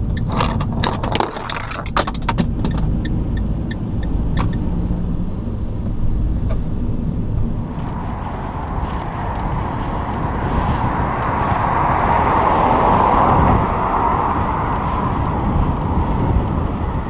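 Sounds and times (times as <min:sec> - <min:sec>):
car engine and road rumble: 0:00.0 - 0:17.0
sharp clicks: 0:00.1 - 0:04.7.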